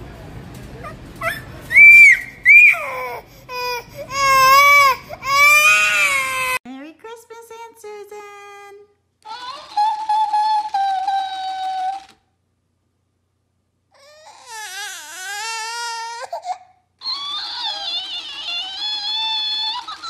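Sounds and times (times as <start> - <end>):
toddler crying: 0.8 - 6.6, 9.3 - 12.1, 14.0 - 19.9
toy playing back cry high-pitched: 9.3 - 12.2, 17.0 - 20.0.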